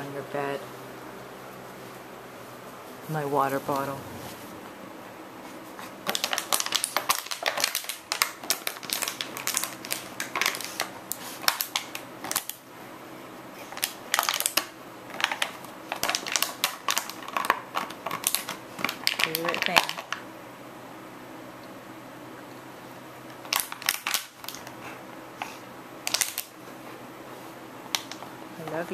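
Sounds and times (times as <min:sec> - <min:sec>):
dog chewing plastic bottle: 0:06.0 - 0:12.6, 0:13.7 - 0:20.2, 0:23.4 - 0:24.7, 0:26.0 - 0:26.5.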